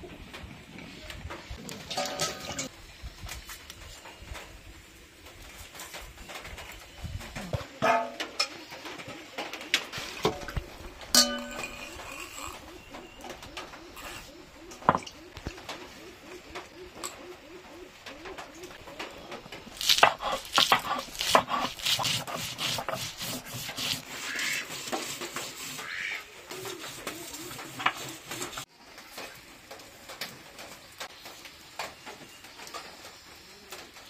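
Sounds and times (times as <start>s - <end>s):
pigeon cooing: 7.1s - 28.7s.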